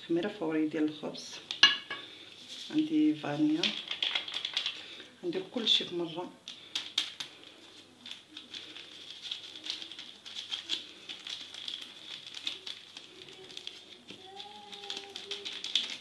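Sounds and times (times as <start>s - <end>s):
paper sachet crinkling: 1.4s - 16.0s
hands rubbing dry flour: 2.1s - 5.0s, 6.5s - 16.0s.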